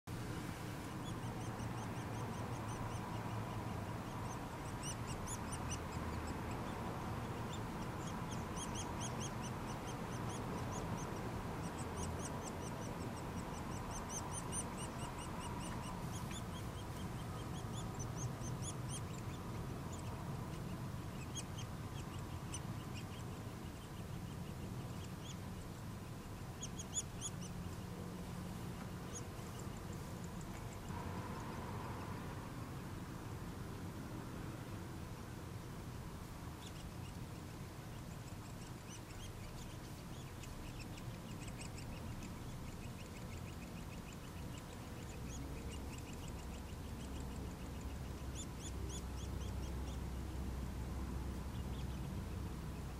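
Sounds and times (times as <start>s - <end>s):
low steady hum: 0.1s - 52.9s
woodpecker nestlings chattering: 1.0s - 28.0s, 36.6s - 50.3s.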